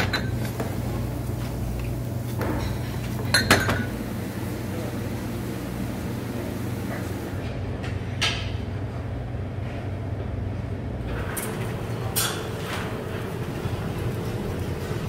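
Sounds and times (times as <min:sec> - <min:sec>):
kitchen clatters and scrapes: 0:00.0 - 0:04.0, 0:11.1 - 0:15.0
low machinery hum: 0:00.0 - 0:15.0.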